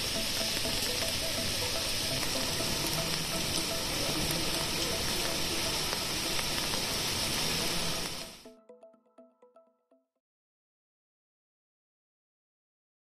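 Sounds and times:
heavy rain on flooded street: 0:00.0 - 0:08.4.

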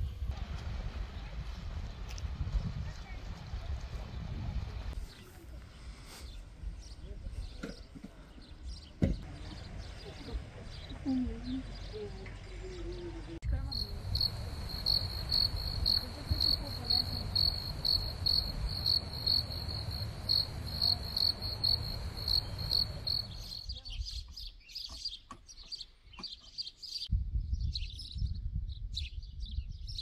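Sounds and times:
cricket chirping: 0:13.6 - 0:23.6.

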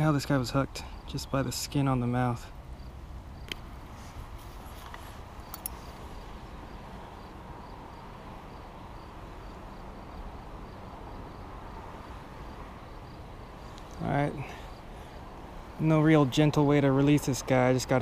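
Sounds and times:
faint insect chirping: 0:00.0 - 0:18.0
light click: 0:04.9 - 0:05.8.

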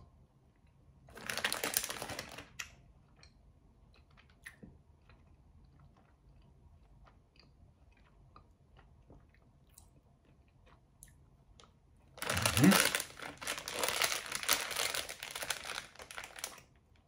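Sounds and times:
plastic bag crinkling: 0:01.1 - 0:02.5, 0:12.2 - 0:16.6.

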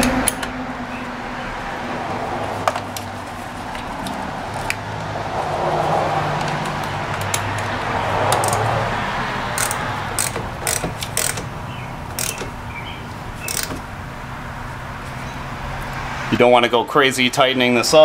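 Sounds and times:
hand ratchet clicking: 0:06.4 - 0:08.8, 0:09.5 - 0:12.6, 0:13.4 - 0:13.9.

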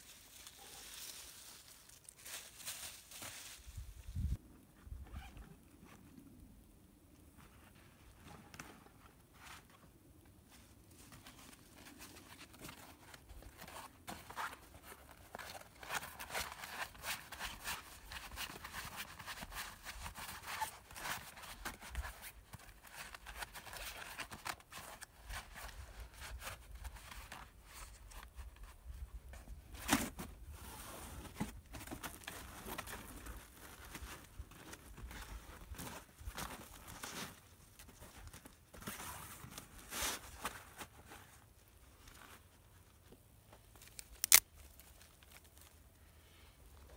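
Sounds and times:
footsteps crunching on snowy leaves: 0:00.0 - 0:04.0.

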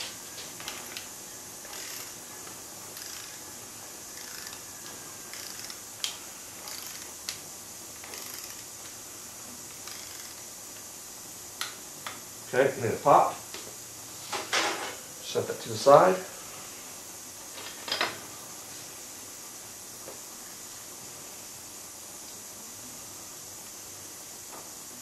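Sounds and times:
low steady hiss: 0:00.0 - 0:25.0
torque wrench ratchet clicks: 0:01.7 - 0:02.2, 0:02.9 - 0:03.4, 0:04.2 - 0:04.6, 0:05.3 - 0:05.8, 0:06.6 - 0:07.2, 0:08.0 - 0:08.7, 0:09.8 - 0:10.4.

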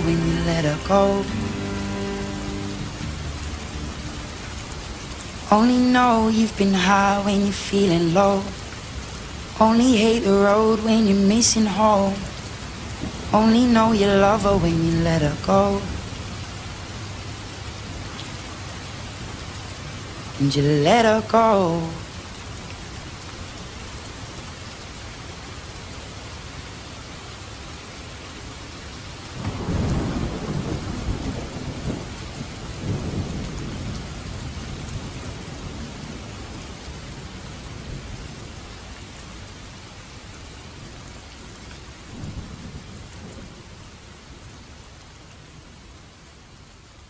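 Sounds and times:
thunder rumbling: 0:00.0 - 0:06.1, 0:29.4 - 0:37.2
steady rain falling: 0:00.0 - 0:47.0.

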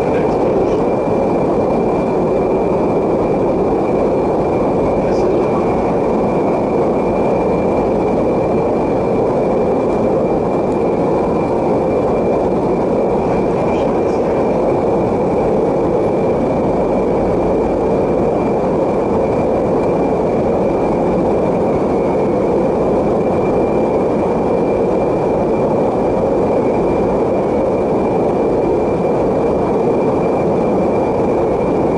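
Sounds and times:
aircraft cabin engine drone: 0:00.0 - 0:31.9
thin steady whine: 0:00.0 - 0:31.9.

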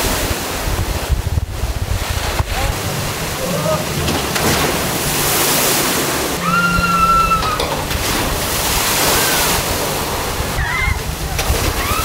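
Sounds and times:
water rushing and splashing: 0:00.0 - 0:12.0
high held tone: 0:06.3 - 0:11.0.

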